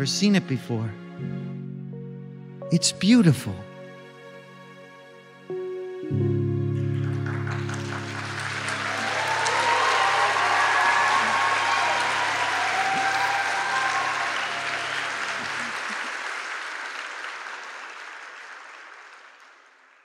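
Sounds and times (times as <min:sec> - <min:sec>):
audience applauding: 0:06.8 - 0:20.0.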